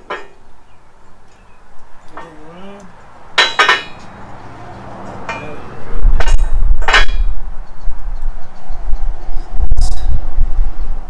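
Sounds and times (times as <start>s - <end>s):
steel clanking: 3.3s - 7.6s
loud low rumble: 4.0s - 11.0s.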